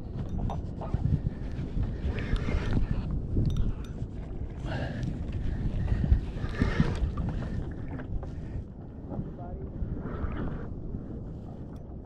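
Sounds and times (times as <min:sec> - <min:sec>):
wind buffeting microphone: 0:00.0 - 0:12.0
water washing against kayak hull: 0:04.2 - 0:11.8.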